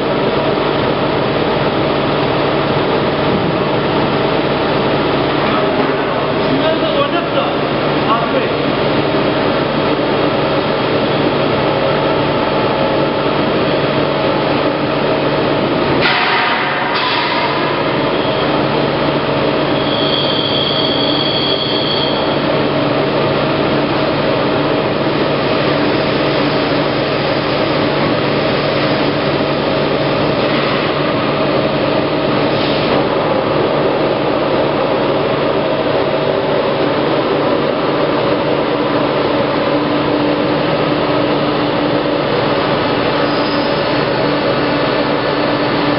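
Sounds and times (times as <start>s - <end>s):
plate rolling machine hum: 0.0s - 20.2s
brief high whine: 19.6s - 22.4s.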